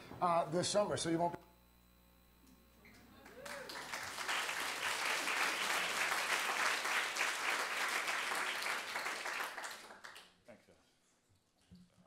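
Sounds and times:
audience applauding: 0:03.2 - 0:10.4.

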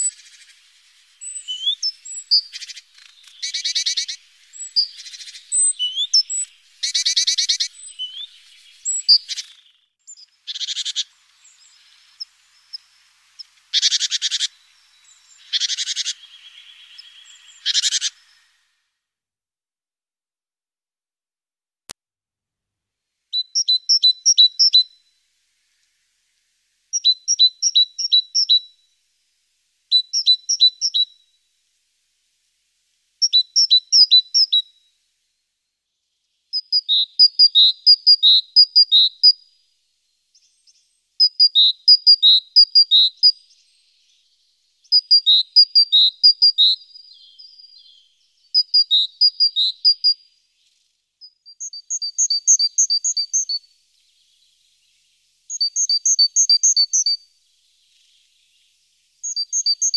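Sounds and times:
great tit singing: 0:00.0 - 0:18.6, 0:23.4 - 0:25.0, 0:26.9 - 0:28.7, 0:29.9 - 0:31.1, 0:33.2 - 0:34.6, 0:40.3 - 0:59.9.

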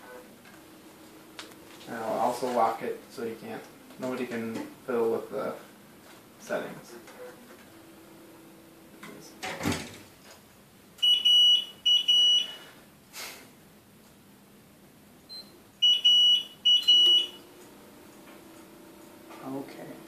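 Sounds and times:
infusion pump beeping: 0:11.0 - 0:12.6, 0:15.3 - 0:17.5.

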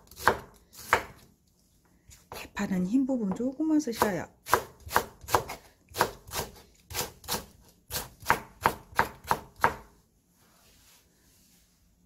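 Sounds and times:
knife chopping on wooden board: 0:00.0 - 0:01.2, 0:04.0 - 0:09.9.

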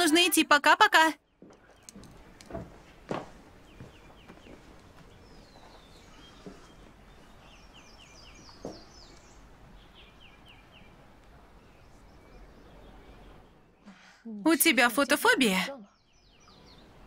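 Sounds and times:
bird chirping: 0:01.2 - 0:17.0
soft thuds: 0:01.4 - 0:04.6.

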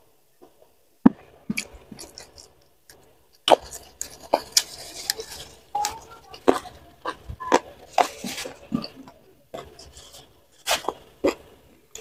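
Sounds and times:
fingers picking food: 0:00.4 - 0:12.0
wet chewing and lip smacks: 0:01.5 - 0:12.0.

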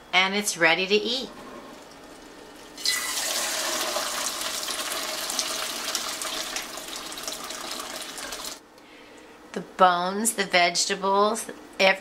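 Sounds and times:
broth splashing through colander: 0:01.7 - 0:08.6.

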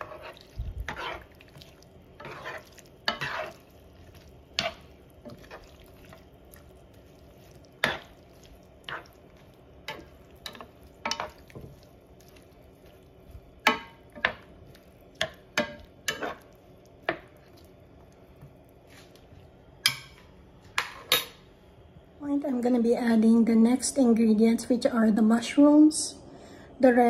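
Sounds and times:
metal spoon scraping frying pan: 0:00.0 - 0:01.4, 0:02.2 - 0:06.1, 0:07.8 - 0:08.2, 0:15.2 - 0:16.5.

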